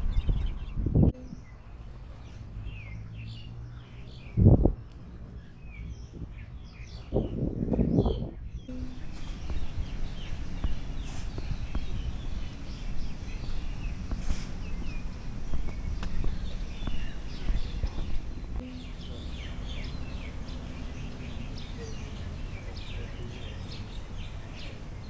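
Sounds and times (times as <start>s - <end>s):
birds chirping: 0.0s - 25.0s
low outdoor rumble: 0.0s - 25.0s
sharp clicks: 15.5s - 16.3s.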